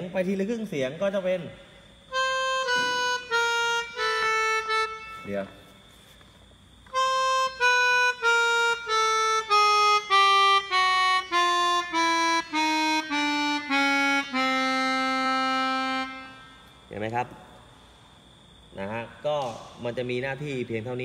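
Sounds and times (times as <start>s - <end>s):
melodica playing descending scale: 2.1s - 5.5s, 6.9s - 16.6s.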